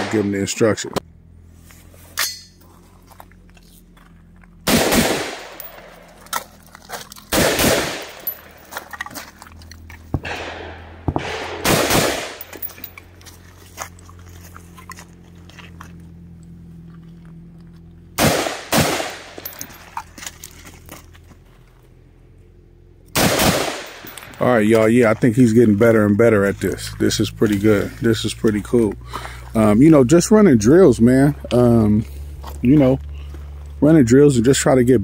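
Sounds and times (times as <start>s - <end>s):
low steady hum: 0.0s - 35.0s
rifle shots with echo: 4.6s - 6.1s, 7.3s - 8.6s, 10.2s - 12.6s, 18.2s - 19.5s, 23.1s - 24.4s.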